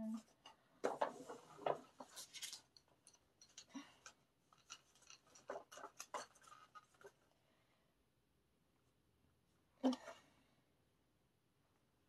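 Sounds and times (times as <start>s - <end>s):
small objects clicking and rustling: 0.8s - 7.3s.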